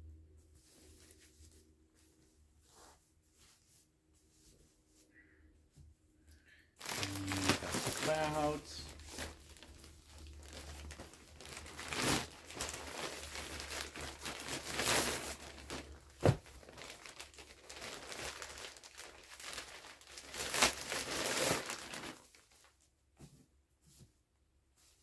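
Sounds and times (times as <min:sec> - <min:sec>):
plastic packs crinkling: 0:06.8 - 0:22.8.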